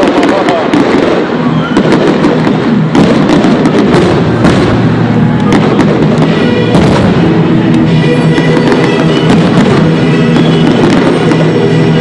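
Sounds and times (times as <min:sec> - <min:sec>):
fireworks bangs: 0:00.0 - 0:12.0
loud music: 0:02.1 - 0:12.0.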